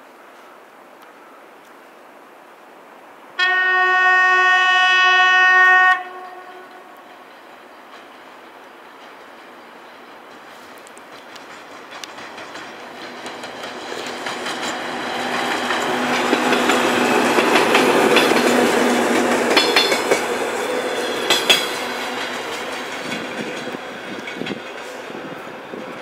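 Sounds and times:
diesel locomotive engine drone: 3.7 - 26.0
train wheels clicking over rail joints: 6.3 - 26.0.

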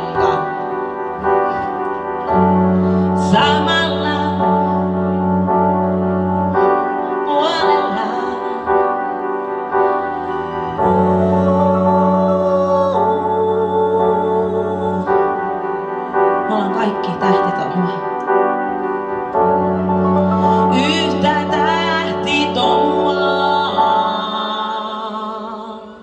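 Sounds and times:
woman singing: 0.0 - 1.2, 3.1 - 5.5, 6.7 - 9.5, 10.8 - 18.2, 20.2 - 26.0
sustained keyboard chords: 0.0 - 25.8.

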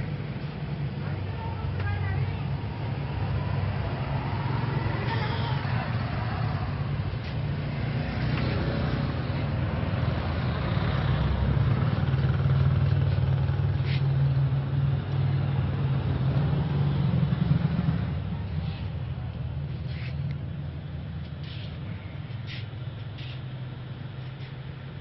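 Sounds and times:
traffic engine hum: 0.0 - 25.0.

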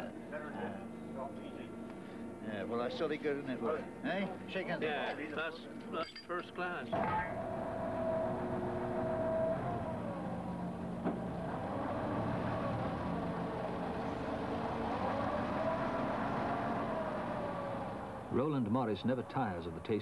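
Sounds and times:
forklift engine running: 7.0 - 20.0.

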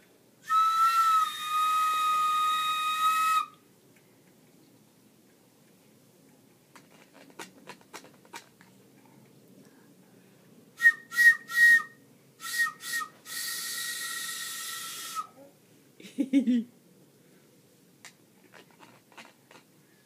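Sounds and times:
breathy whistle toots: 0.4 - 3.6, 10.8 - 15.4.

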